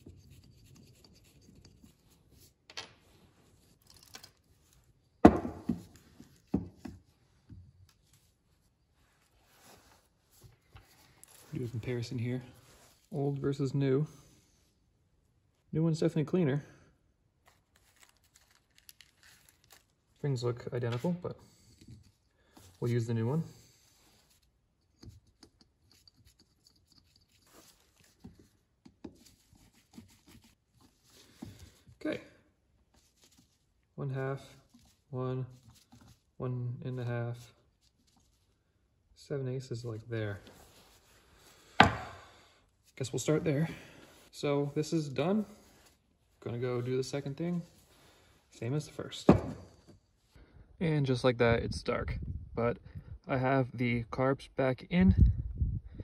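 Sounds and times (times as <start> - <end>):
clicks and rustles of handling parts: 0.0 - 12.1, 17.4 - 23.0, 24.2 - 32.0
knocks on wooden bench: 5.2 - 5.8, 41.8 - 42.1.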